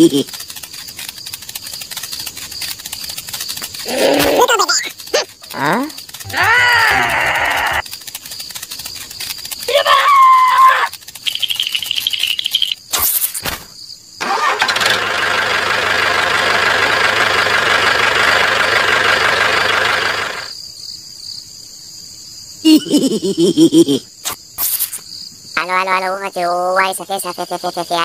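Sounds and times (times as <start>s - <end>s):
engine running: 14.2s - 20.5s.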